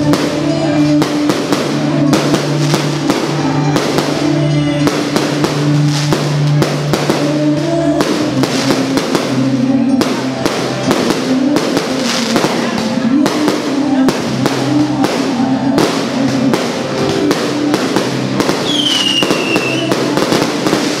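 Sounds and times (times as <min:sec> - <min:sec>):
low bass line: 0:00.0 - 0:18.7.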